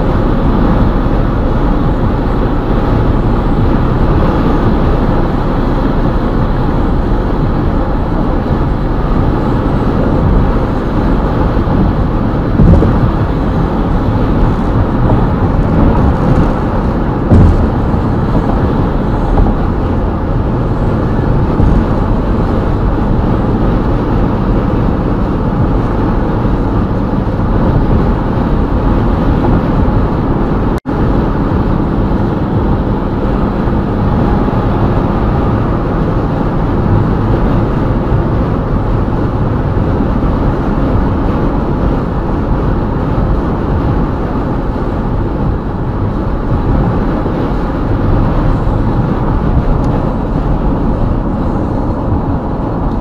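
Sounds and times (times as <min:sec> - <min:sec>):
car road noise: 0:00.0 - 0:53.0
short thumps: 0:12.5 - 0:20.2, 0:21.3 - 0:22.6.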